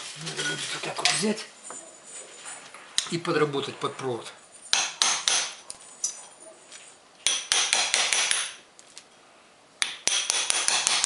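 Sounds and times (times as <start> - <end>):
hammer tapping steel chisel: 9.8 - 11.0.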